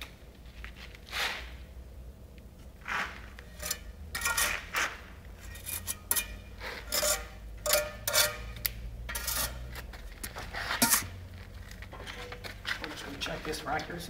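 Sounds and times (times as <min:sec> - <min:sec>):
trowel scraping mortar and brick: 0:02.8 - 0:11.2.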